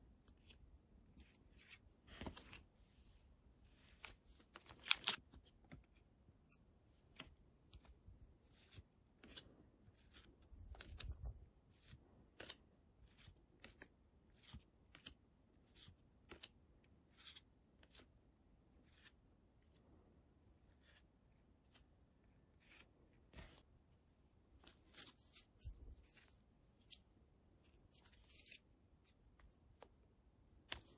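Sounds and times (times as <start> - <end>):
cards sliding and swishing: 22.6 - 23.7, 27.6 - 28.6.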